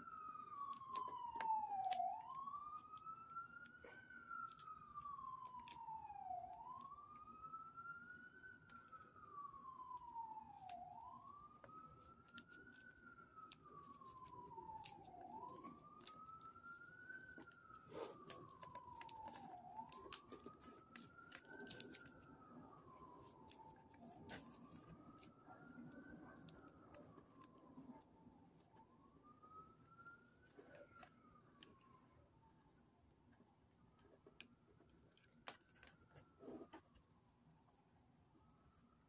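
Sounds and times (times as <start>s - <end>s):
faint siren wailing: 0.0s - 39.0s
handling clicks and rustles: 9.9s - 28.8s.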